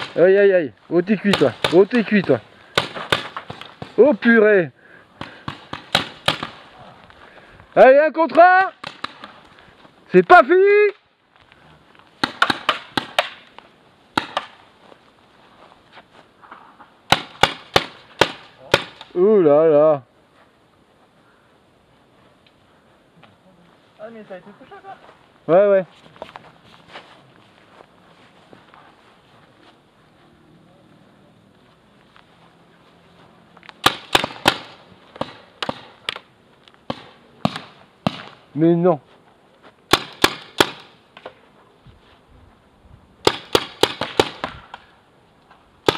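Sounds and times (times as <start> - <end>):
paintball markers firing: 5.2 - 6.6, 8.8 - 9.4, 12.2 - 13.5, 33.8 - 36.3, 36.9 - 38.3, 39.9 - 41.3, 43.2 - 44.9
paintball marker firing pops: 8.8 - 9.4, 12.2 - 13.5.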